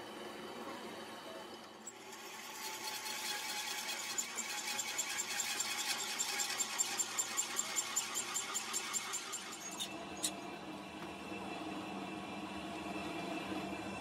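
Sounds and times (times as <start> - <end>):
power tool running: 1.9 - 10.3.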